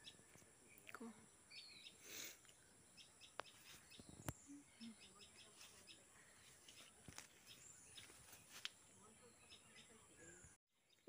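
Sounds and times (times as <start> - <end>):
bird chirping: 0.0 - 11.0.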